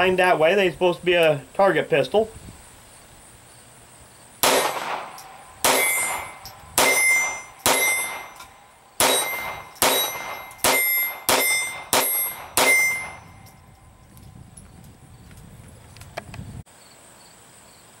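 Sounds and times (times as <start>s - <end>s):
pistol shots: 4.4s - 13.2s.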